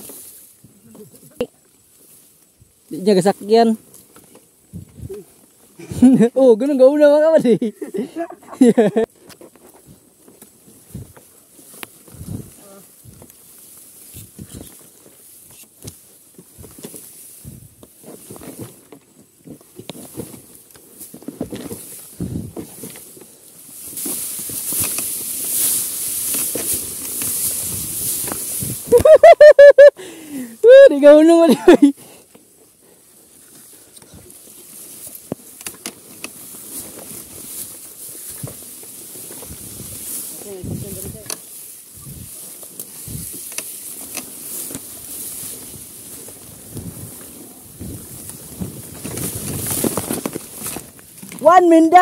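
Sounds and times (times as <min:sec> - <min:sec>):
grass rustling against bike: 0:00.0 - 0:52.0
knocks and scuffs of bike: 0:03.8 - 0:05.8, 0:09.1 - 0:29.1, 0:33.4 - 0:51.4
clicks and knocks from a bike: 0:17.8 - 0:27.6, 0:35.1 - 0:37.7, 0:42.7 - 0:44.9.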